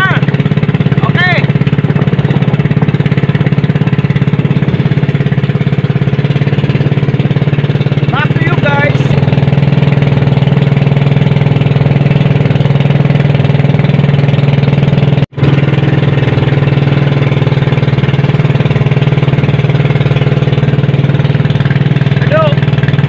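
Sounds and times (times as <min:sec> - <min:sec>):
boat engine droning: 0:00.0 - 0:23.0.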